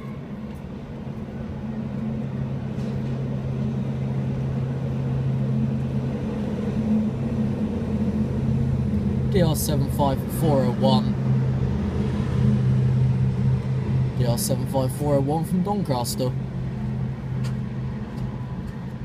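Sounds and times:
diesel engine drone: 0.0s - 19.0s.

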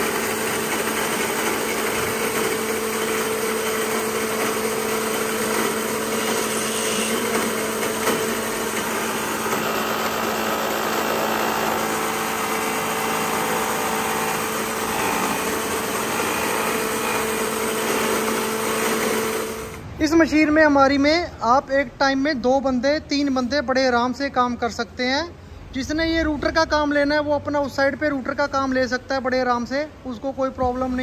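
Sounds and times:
machine cutting wood: 0.0s - 19.9s
woodworking machine motor hum: 0.0s - 19.9s.

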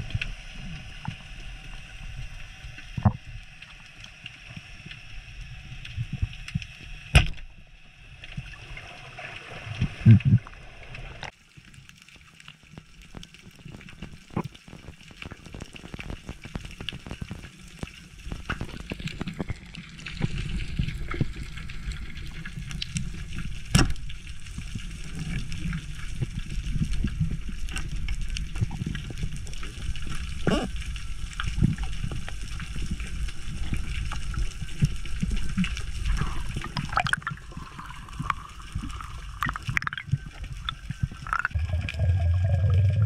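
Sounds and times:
crackle of small underwater clicks: 0.0s - 7.6s, 9.3s - 42.9s
low underwater rumble: 18.3s - 43.0s.

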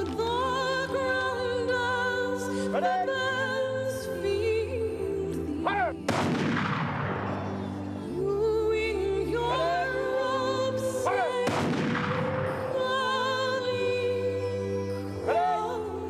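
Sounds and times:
music with singing voice: 0.0s - 16.0s
rifle volleys echoing: 6.1s - 7.7s, 11.4s - 12.8s.

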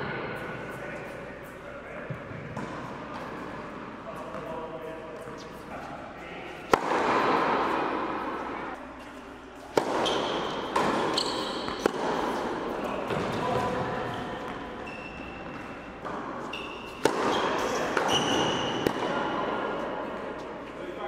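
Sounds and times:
tennis shoes squeaking on court: 5.2s - 5.9s, 9.0s - 19.6s
tennis ball struck with racket: 6.7s - 8.5s, 9.6s - 13.8s, 16.9s - 19.3s.

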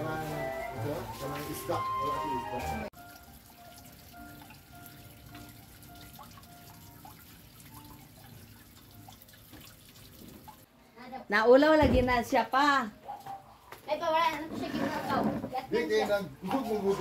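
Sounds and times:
rainwater dripping onto wooden lids: 3.0s - 10.7s.

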